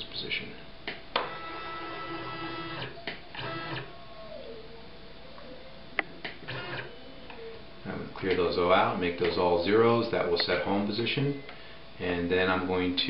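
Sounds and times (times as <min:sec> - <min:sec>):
stepper motors whining: 0:01.1 - 0:04.1, 0:06.2 - 0:07.5.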